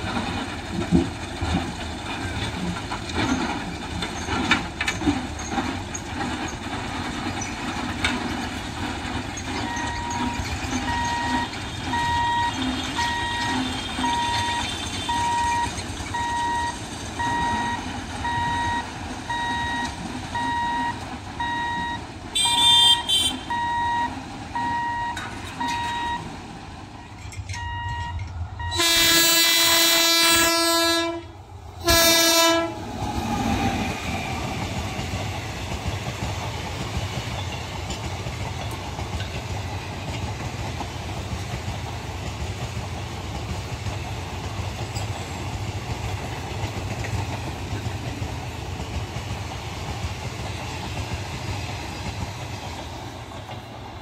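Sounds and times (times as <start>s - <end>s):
level crossing signal beeping: 9.6s - 26.4s, 27.5s - 28.8s
locomotive horn blasts: 22.3s - 24.0s, 27.6s - 32.8s.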